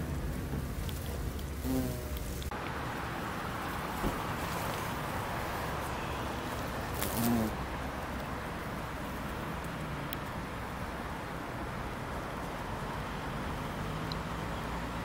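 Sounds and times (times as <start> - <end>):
background hiss: 0.0 - 15.0
bumblebee buzzing: 1.6 - 2.5, 5.5 - 7.6.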